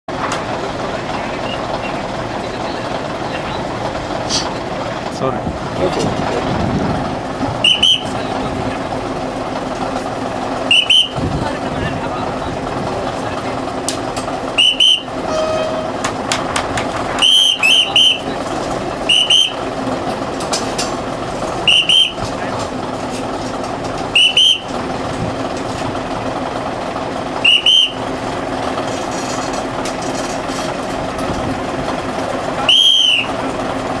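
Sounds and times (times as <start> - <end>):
heavy machine engine hum: 0.1 - 34.0
shrill whistle blasts: 7.6 - 8.2, 10.7 - 11.2, 14.6 - 15.9, 17.2 - 18.3, 19.1 - 19.6, 21.7 - 22.2, 24.2 - 24.7, 27.4 - 28.0, 32.6 - 33.4.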